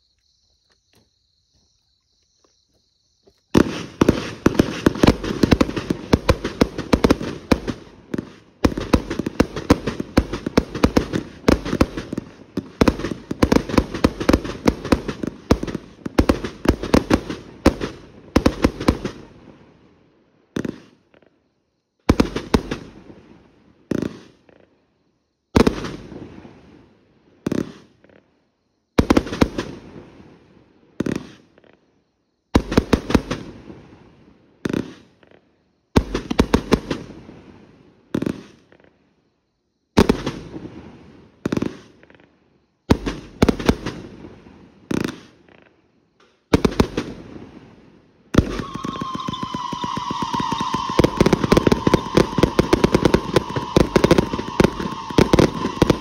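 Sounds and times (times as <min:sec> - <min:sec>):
fireworks bangs: 0:03.2 - 0:19.6, 0:20.5 - 0:21.0, 0:22.1 - 0:24.6, 0:25.6 - 0:26.8, 0:32.6 - 0:35.2, 0:36.0 - 0:38.8, 0:42.9 - 0:45.6, 0:46.3 - 0:56.0.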